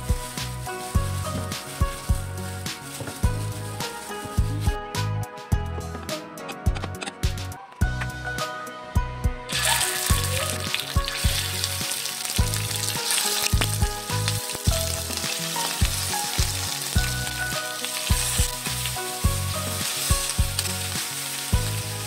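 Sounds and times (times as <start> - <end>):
chicken sizzling in hot oil: 0.0 - 4.1, 9.5 - 22.0.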